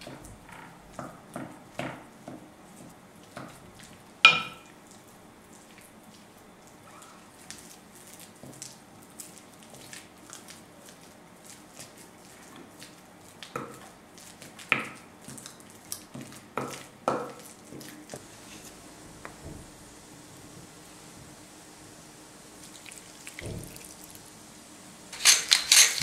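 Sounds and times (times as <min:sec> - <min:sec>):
potatoes squishing: 0:22.6 - 0:24.3.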